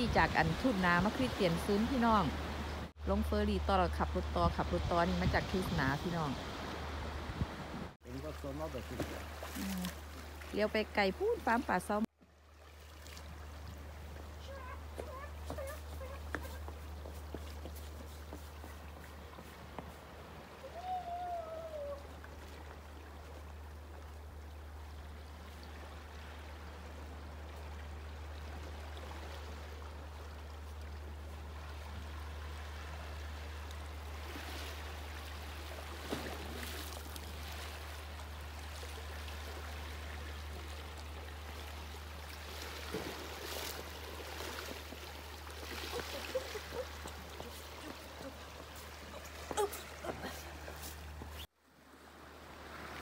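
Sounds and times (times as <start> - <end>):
low rumble of sea: 0.0 - 53.0
water lapping against rocks: 8.2 - 11.5, 22.0 - 51.4.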